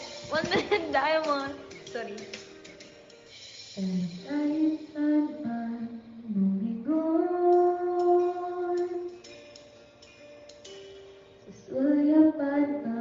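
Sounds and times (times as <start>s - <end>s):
quiet backing track: 0.0s - 13.0s.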